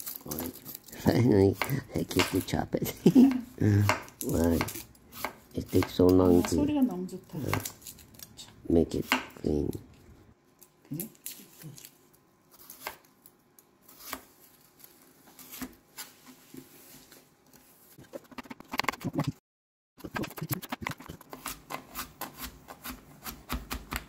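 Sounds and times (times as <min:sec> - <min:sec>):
knife cutting on plastic board: 0:20.6 - 0:24.0.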